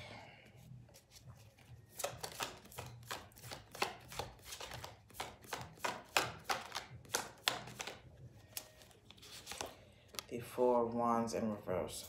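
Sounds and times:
cards being shuffled: 0.9s - 10.3s.

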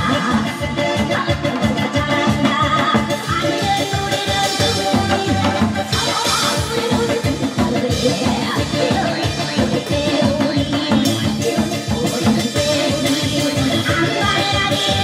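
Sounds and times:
music: 0.0s - 15.0s
person singing: 0.0s - 15.0s.

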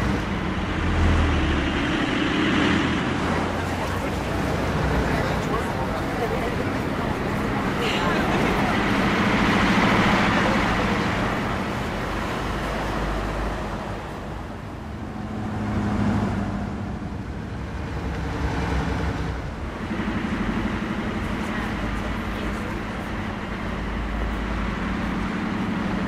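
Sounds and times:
vehicles driving past: 0.0s - 26.0s.

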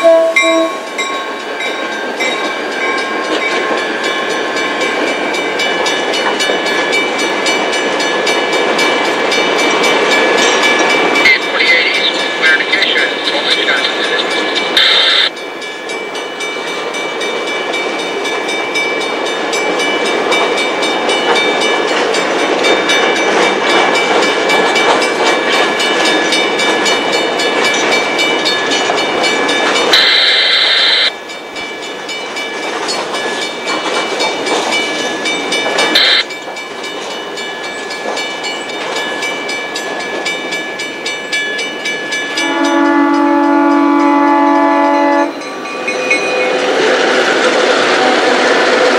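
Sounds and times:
diesel locomotive horn chord: 0.0s - 0.9s, 42.4s - 46.9s
freight train rolling past: 0.0s - 48.9s.

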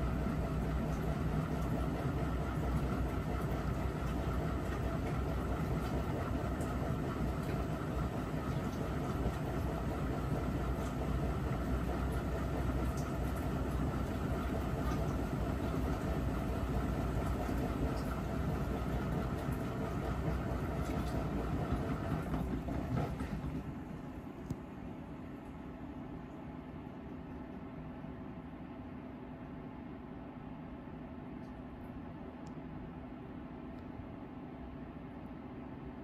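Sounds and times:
washing machine drum rumbling: 0.0s - 24.3s.

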